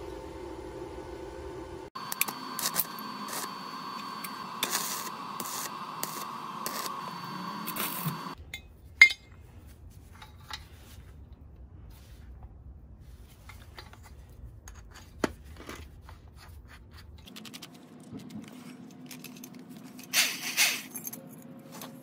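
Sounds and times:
welding arc crackling and hissing: 1.9 - 8.4.

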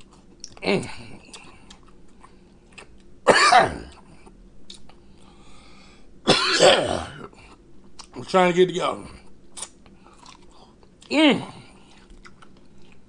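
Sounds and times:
man coughing: 3.3 - 4.0, 6.3 - 7.3.

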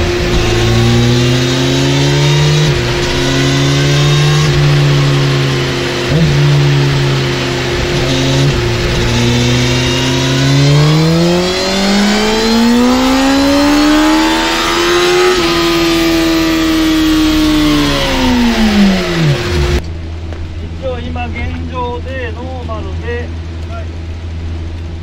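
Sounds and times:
motorcycle engine revving: 0.0 - 19.8.

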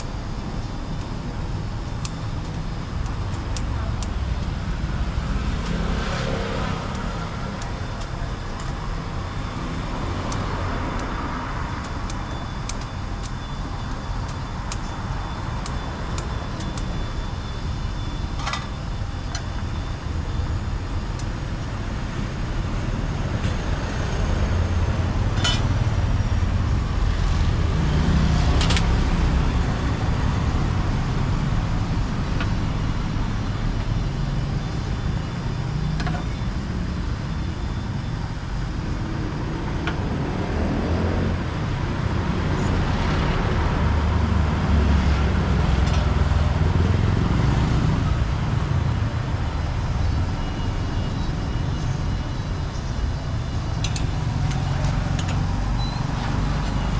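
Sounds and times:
road traffic rumble: 0.0 - 56.9.

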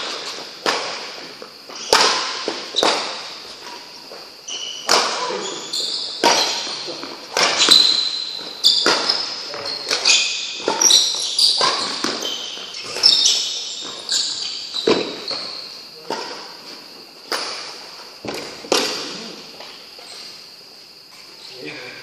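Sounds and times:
shoes squeaking on court floor: 0.0 - 21.7
rackets striking shuttlecock: 1.7 - 3.4, 4.8 - 5.3, 6.2 - 13.9.

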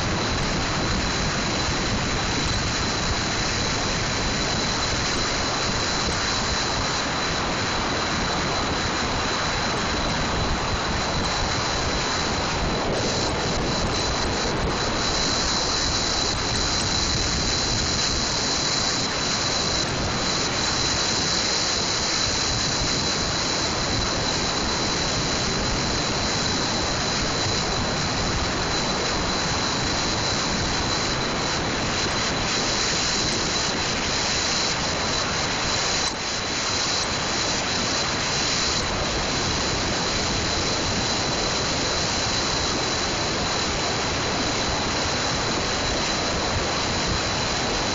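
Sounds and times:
car road and wind noise: 0.0 - 47.9.

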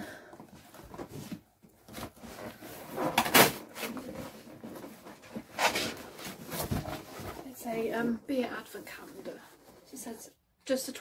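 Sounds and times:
cardboard scraping rustle: 0.8 - 8.1.

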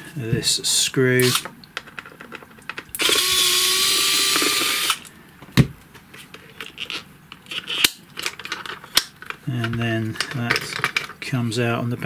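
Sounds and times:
electric screwdriver whine: 3.0 - 5.0.

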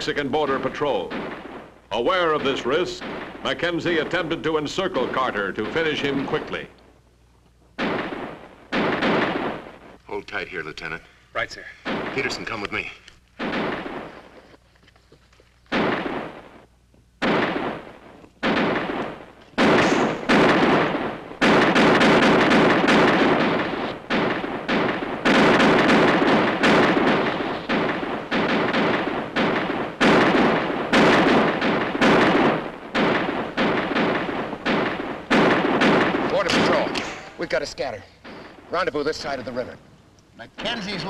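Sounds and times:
echoing gunshots: 0.0 - 6.9, 7.8 - 11.1, 11.7 - 14.5, 15.7 - 39.8.

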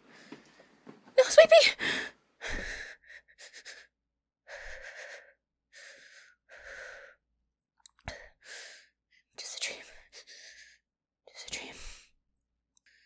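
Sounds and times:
woman breathing heavily: 1.6 - 7.3, 8.0 - 9.3, 9.9 - 10.9.

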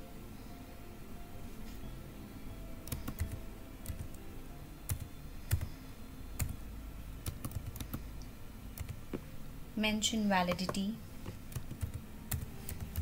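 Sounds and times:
keyboard typing clicks: 2.8 - 4.2, 4.9 - 5.7, 7.2 - 8.0, 8.8 - 9.1, 11.5 - 13.0.

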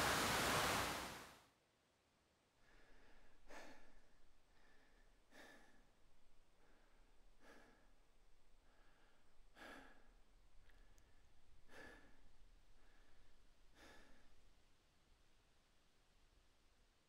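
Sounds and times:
heavy human breathing: 2.6 - 14.6.

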